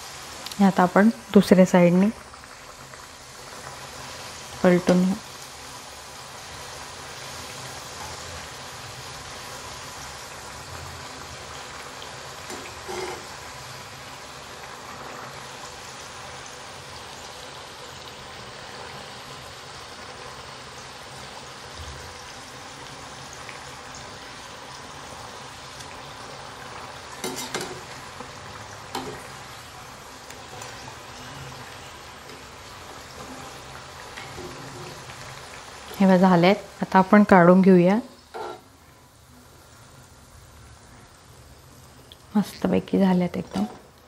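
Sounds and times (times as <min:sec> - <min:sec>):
strips deep-frying in hot oil: 0:12.0 - 0:13.8, 0:27.0 - 0:29.6, 0:32.2 - 0:38.8
metal utensil knocking on pan: 0:27.2 - 0:27.8, 0:38.4 - 0:38.6.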